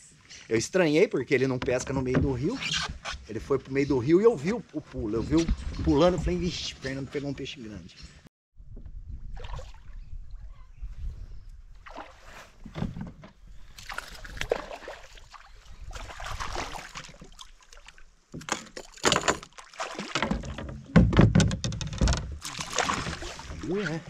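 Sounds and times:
water splashing and sloshing: 8.6s - 24.0s
knocks and bumps: 20.1s - 22.4s.

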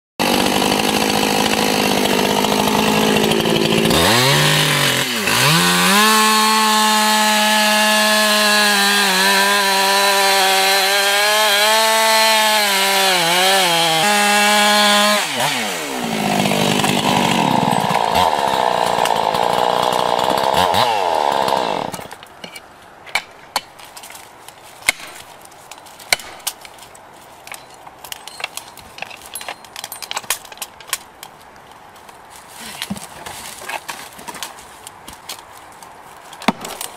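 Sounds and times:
chainsaw cutting wood: 0.2s - 22.2s.

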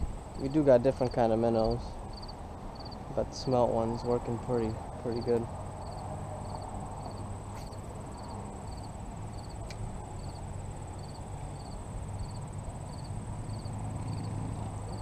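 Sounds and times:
wind on microphone: 0.0s - 0.6s
crickets chirping: 0.0s - 15.0s
high insect trill: 0.0s - 15.0s.

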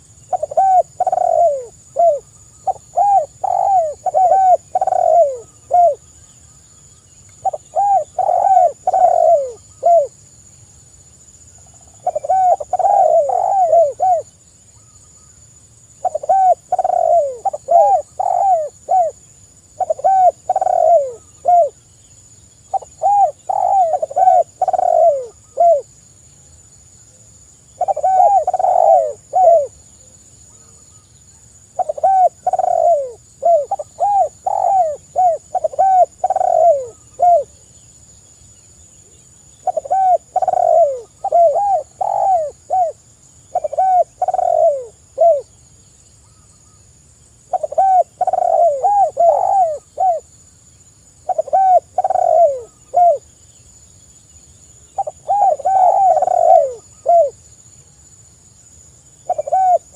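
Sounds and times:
dove cooing: 0.0s - 6.1s, 7.4s - 10.1s, 11.6s - 14.3s, 16.0s - 19.2s, 19.8s - 21.8s, 22.7s - 25.9s, 27.8s - 29.8s, 31.7s - 37.6s, 39.6s - 45.5s, 47.5s - 50.3s, 51.2s - 53.3s, 55.0s - 57.4s, 59.2s - 59.9s.

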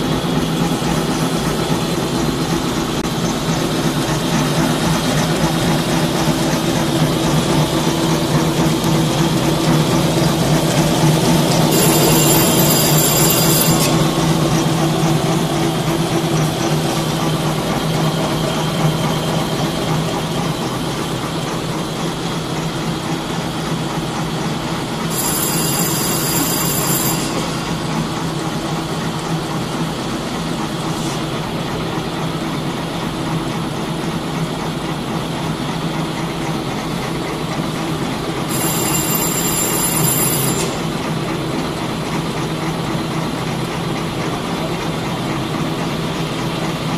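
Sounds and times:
high-pitched whine: 0.0s - 31.3s
machine humming and clattering: 0.0s - 46.9s.

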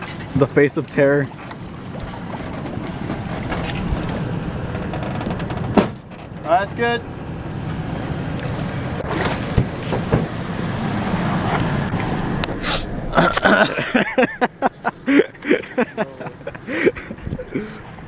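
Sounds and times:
people laughing: 13.1s - 17.8s.

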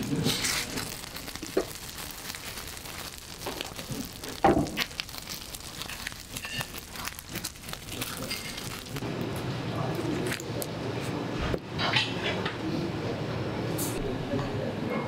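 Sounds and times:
foil and paper crinkling: 0.0s - 9.0s, 9.9s - 10.7s.

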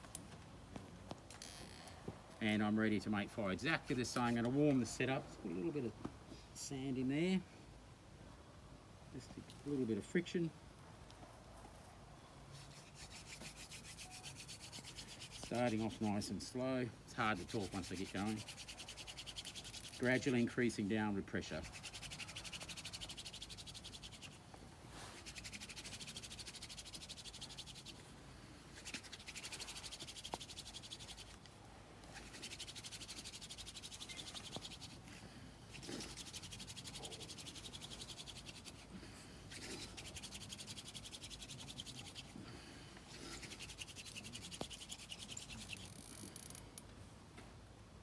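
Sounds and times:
hand drill friction scratching: 12.6s - 16.3s, 17.1s - 20.8s, 21.4s - 24.4s, 25.1s - 28.0s, 28.8s - 31.4s, 32.1s - 35.0s, 35.7s - 38.9s, 39.5s - 42.4s, 43.1s - 46.6s.

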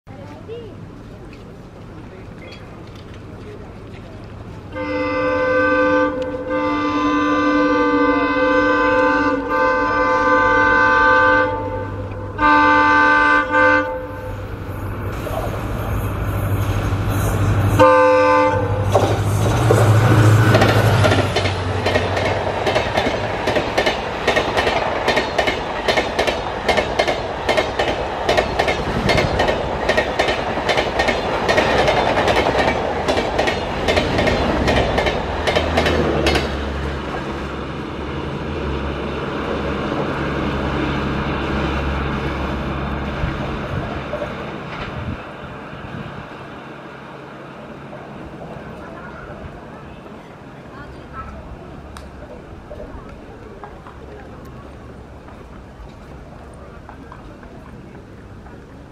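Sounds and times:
diesel locomotive engine hum: 0.1s - 58.9s
train horn blast: 4.7s - 14.5s, 17.7s - 21.0s
train wheels clattering on track: 13.8s - 45.4s, 51.8s - 58.9s.

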